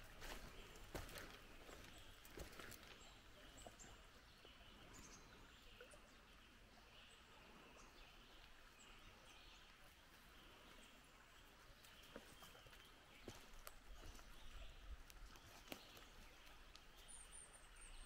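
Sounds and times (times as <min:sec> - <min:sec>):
soft footsteps: 0:00.0 - 0:03.1, 0:11.9 - 0:17.0
creek hush: 0:00.0 - 0:17.7
small birds chirping: 0:00.0 - 0:18.0.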